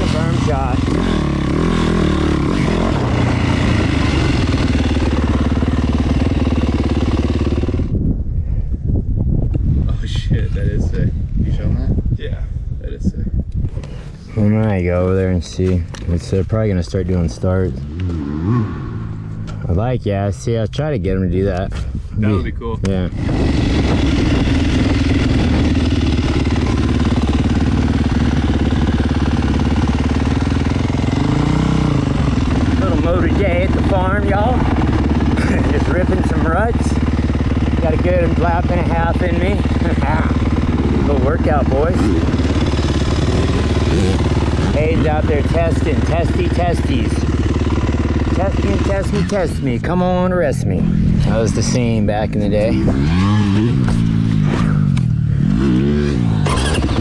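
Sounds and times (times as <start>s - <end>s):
motocross bike engine revving: 0.0s - 8.0s, 16.3s - 19.7s, 23.0s - 57.0s.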